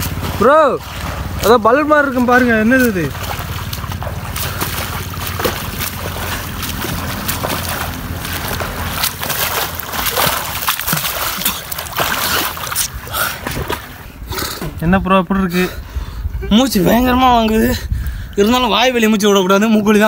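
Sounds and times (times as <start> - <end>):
rain falling on water: 0.0 - 12.4
swimming strokes splashing water: 0.0 - 14.8.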